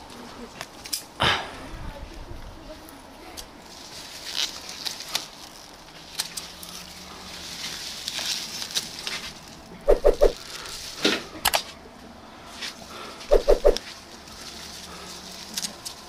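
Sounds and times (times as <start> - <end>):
leaves rustling: 2.0 - 16.0
animal calling: 9.8 - 10.4, 13.3 - 13.8.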